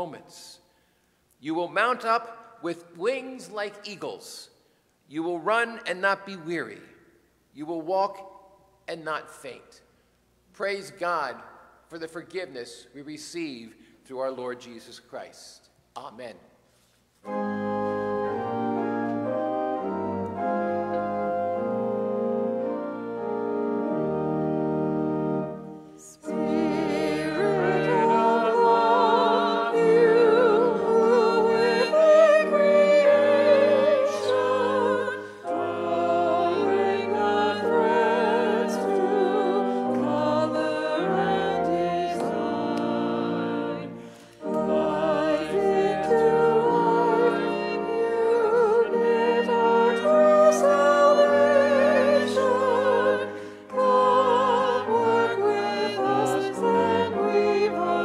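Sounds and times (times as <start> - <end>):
organ chords: 17.2 - 58.0
person singing with vibrato: 25.9 - 58.0.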